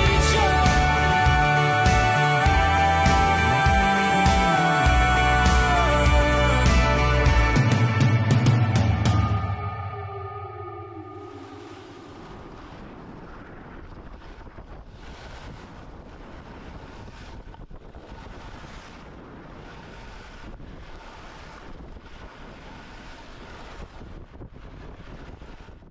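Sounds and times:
wind rushing over microphone: 9.0 - 25.9.

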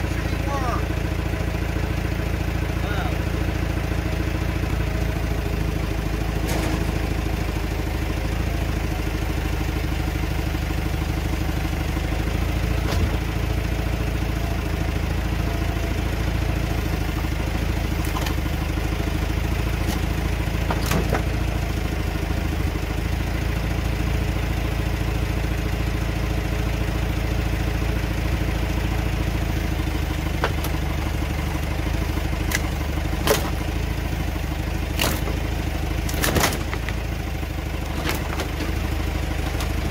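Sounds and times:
forklift engine running: 0.0 - 39.9
metal clanks and knocks: 6.4 - 7.1, 19.8 - 21.4.

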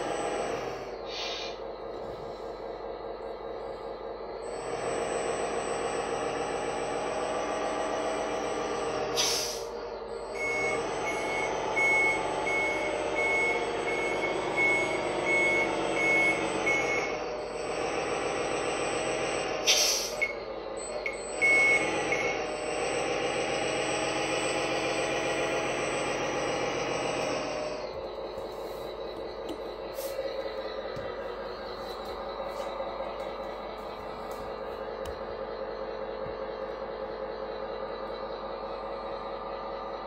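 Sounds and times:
truck engine hum: 0.0 - 40.0
air-brake hiss: 1.1 - 1.7, 9.1 - 9.7, 19.6 - 20.2, 29.9 - 30.4
reversing beeps: 9.4 - 17.6, 20.0 - 22.6.

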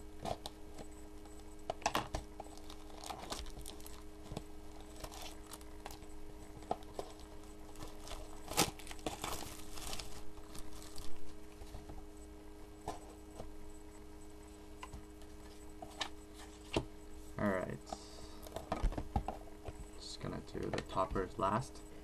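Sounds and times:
steady low hum: 0.0 - 22.0
plastic wrap crinkling: 1.8 - 11.9.

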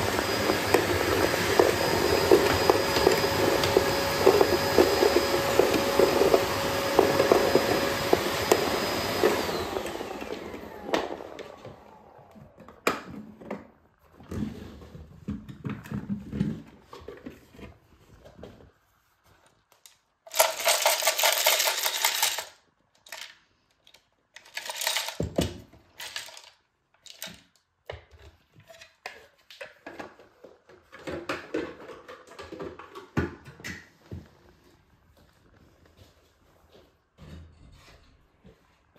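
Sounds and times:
plastic bricks rattling in container: 20.3 - 23.4, 24.4 - 27.4.

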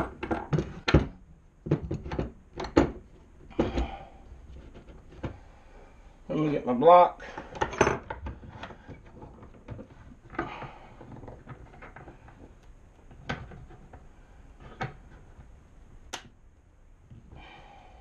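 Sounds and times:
sharp clicks and knocks: 0.0 - 5.4
handling wood and metal clamp: 7.2 - 16.0.

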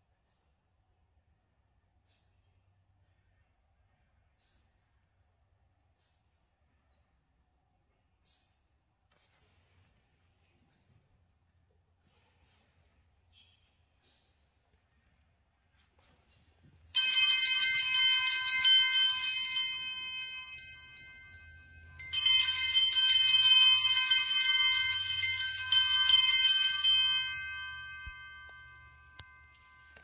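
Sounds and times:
altar bells jangling: 16.9 - 30.0.

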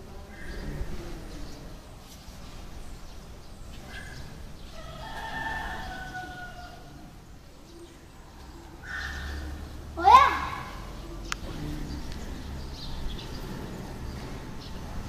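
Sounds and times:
rooster crowing: 4.8 - 7.0.

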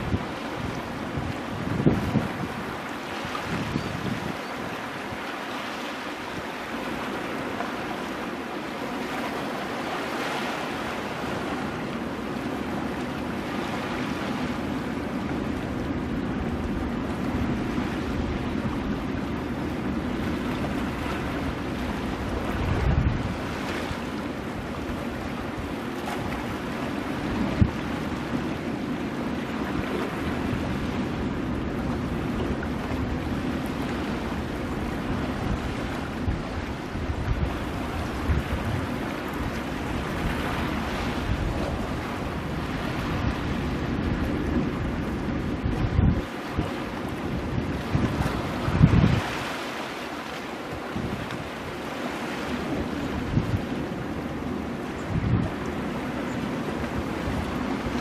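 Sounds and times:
surf breaking on rocks: 35.0 - 53.6.

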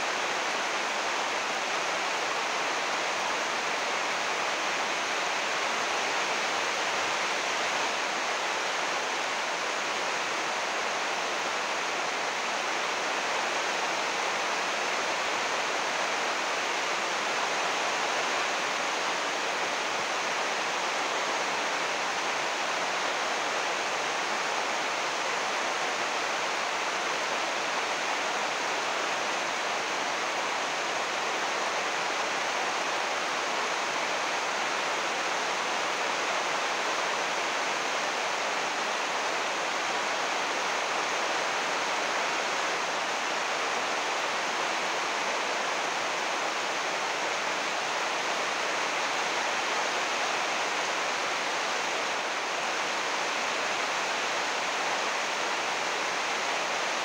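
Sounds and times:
heavy rain on plastic roof: 0.0 - 57.0.

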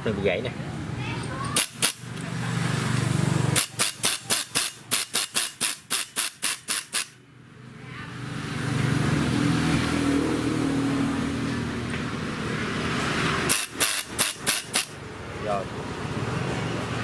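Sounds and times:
impact screwdriver hammering: 1.6 - 2.0, 3.6 - 7.1, 13.5 - 15.0.

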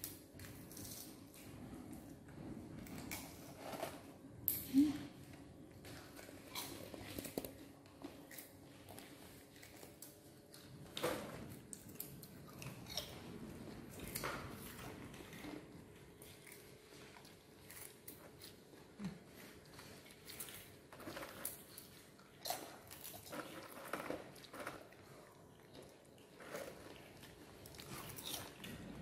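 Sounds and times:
monkeys chewing: 5.8 - 10.9, 11.6 - 29.0.

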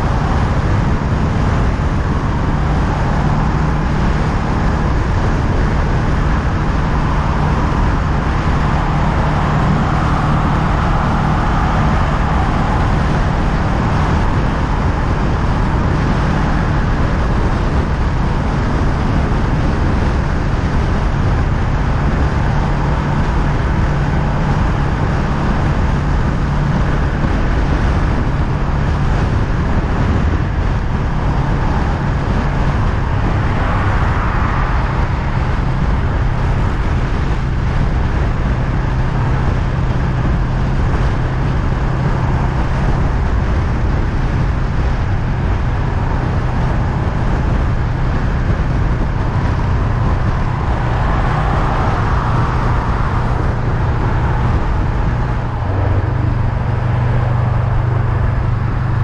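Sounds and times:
continuous rushing noise: 0.0 - 59.0
motorcycle engine cruising: 0.0 - 59.0.

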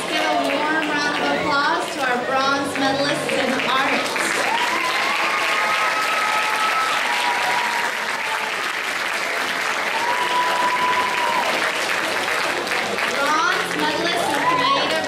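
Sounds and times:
audience applauding: 3.2 - 15.0.

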